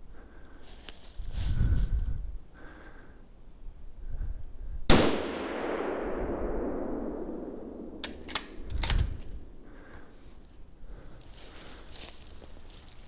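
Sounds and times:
rifle shot echoing: 4.9s - 9.7s
rifle action clicking: 8.0s - 9.4s.

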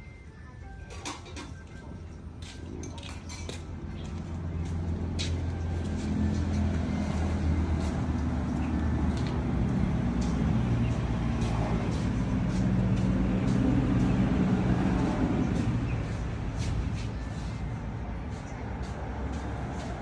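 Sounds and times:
vehicle engine running: 3.6s - 20.0s.

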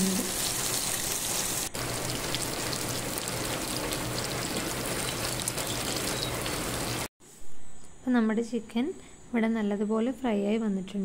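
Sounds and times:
chicken sizzling in oil: 0.0s - 7.1s.

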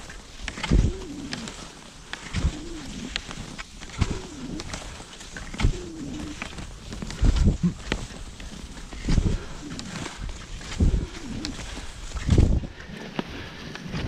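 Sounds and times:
ski pole clicks: 0.0s - 14.0s
skis pushing off on snow: 0.0s - 14.0s.

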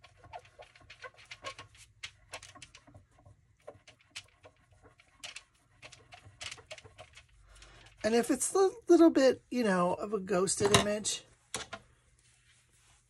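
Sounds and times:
fingernails scratching plastic: 0.0s - 7.8s.

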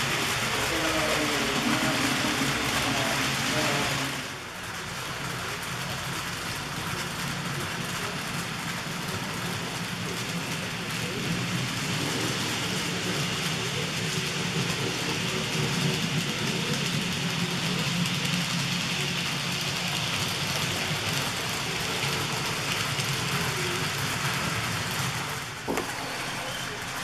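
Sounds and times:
model train motor hum: 0.0s - 27.0s
wheels clattering on rails: 0.0s - 27.0s.

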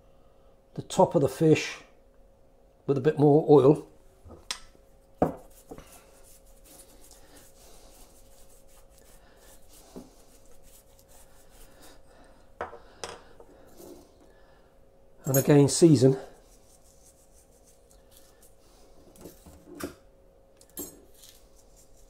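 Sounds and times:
pastry brush strokes: 5.4s - 12.4s, 15.8s - 19.0s, 21.2s - 22.0s.

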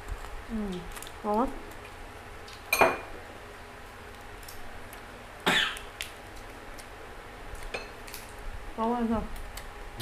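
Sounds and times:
eating and utensil clicks: 4.1s - 5.1s, 5.7s - 8.4s.

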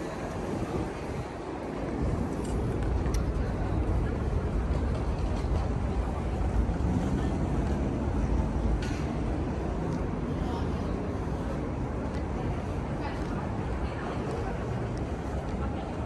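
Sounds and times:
wind buffeting microphone: 0.0s - 10.2s
low rumble of traffic: 0.0s - 16.0s.

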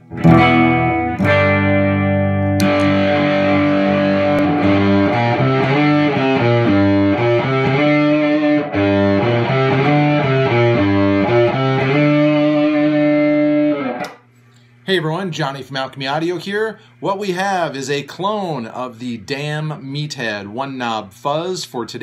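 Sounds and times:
clean electric guitar chord: 0.0s - 14.1s
fuzzy electric guitar riff: 0.0s - 14.2s.

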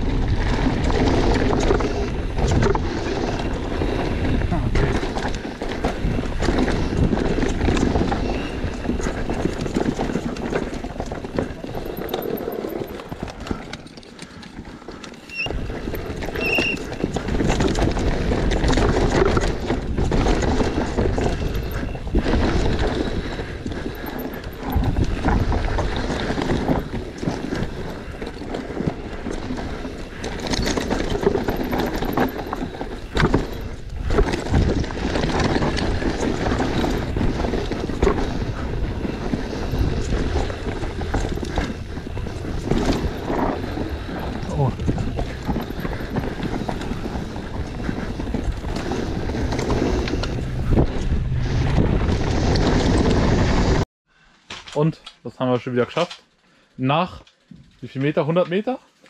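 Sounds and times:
bike rattling over bumps: 0.0s - 53.8s
bike tyres on dirt and stones: 0.0s - 54.9s
short high squeaks: 15.2s - 15.6s, 16.3s - 16.9s.

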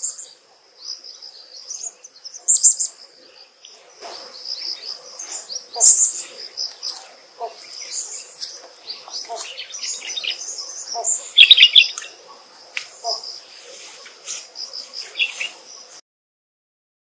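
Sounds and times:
birds chirping: 0.0s - 16.0s
short lower bird calls: 9.1s - 12.1s.

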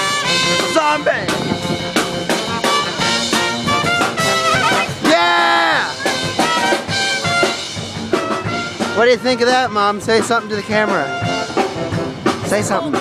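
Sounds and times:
brass band playing jazzy tune: 0.0s - 13.0s
trombone: 0.0s - 13.0s
trumpet: 0.0s - 13.0s.

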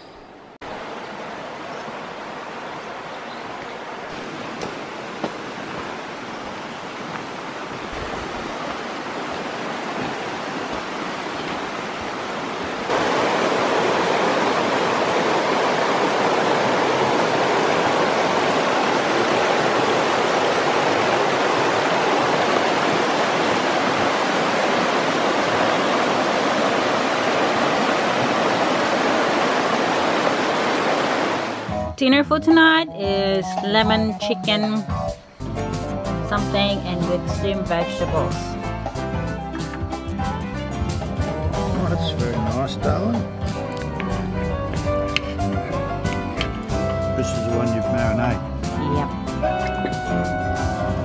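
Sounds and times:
creek rushing over rocks: 0.6s - 31.7s.

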